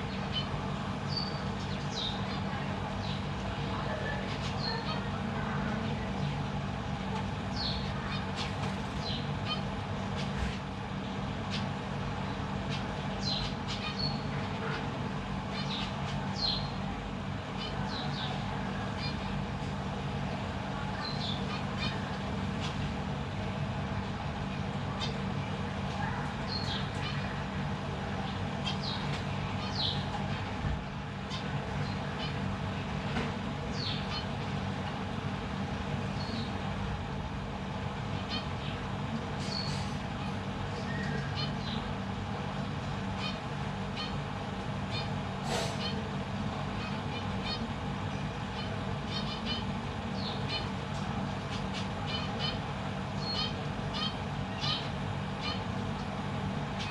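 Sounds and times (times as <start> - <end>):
finch calls: 0.0 - 5.2, 7.5 - 10.6, 12.6 - 16.8, 17.5 - 19.4, 20.8 - 22.9, 25.9 - 27.5, 28.2 - 30.5, 33.7 - 34.4, 36.1 - 36.6, 38.1 - 38.8, 39.4 - 42.0, 43.0 - 56.1, 56.7 - 56.9
steady low hum: 0.0 - 56.9
finches nasal calls: 0.1 - 6.1, 44.9 - 50.8, 51.4 - 55.8.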